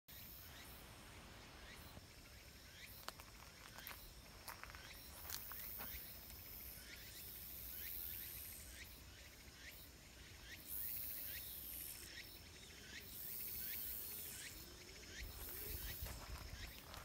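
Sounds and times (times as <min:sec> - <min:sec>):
insects buzzing shrilly: 0:00.1 - 0:17.0
sweeping insect chirp: 0:00.1 - 0:17.0
thin insect whine: 0:00.1 - 0:17.0.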